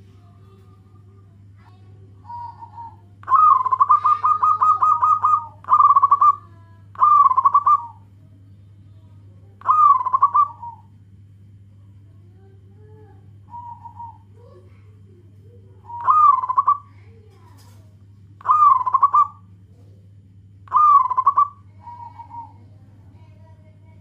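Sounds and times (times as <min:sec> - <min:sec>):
steady low hum: 0:00.0 - 0:24.0
dove cooing and rattling: 0:02.2 - 0:06.4.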